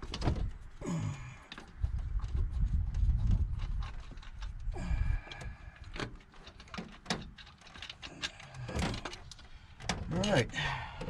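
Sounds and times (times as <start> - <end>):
wind rumble on microphone: 0.0 - 6.0
clicks and knocks of metal: 3.6 - 11.0.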